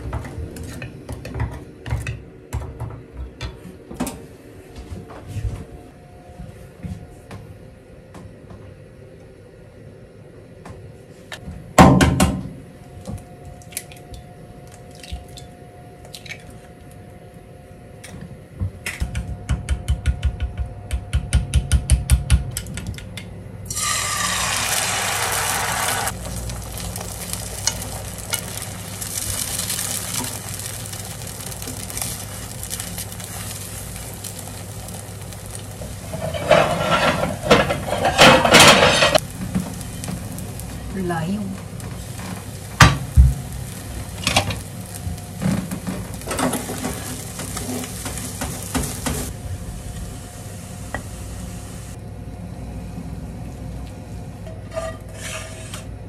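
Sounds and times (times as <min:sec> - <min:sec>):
egg sizzling in hot oil: 0:23.7 - 0:52.0
scraping and clattering in pan: 0:35.8 - 0:40.2, 0:54.5 - 0:55.9.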